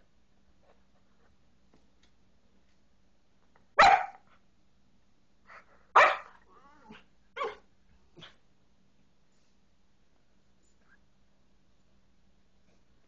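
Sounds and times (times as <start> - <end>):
puppy barking: 3.8 - 4.3, 6.0 - 6.4, 7.4 - 7.6.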